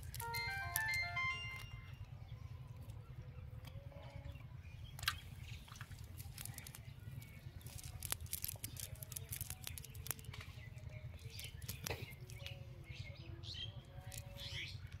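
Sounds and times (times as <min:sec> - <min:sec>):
small clicks: 0:05.8 - 0:10.5, 0:11.3 - 0:12.5.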